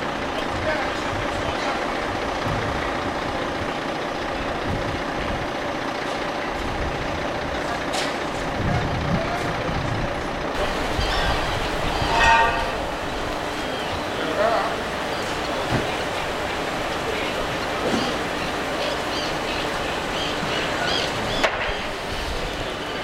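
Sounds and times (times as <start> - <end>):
truck diesel engine running: 0.0 - 23.0.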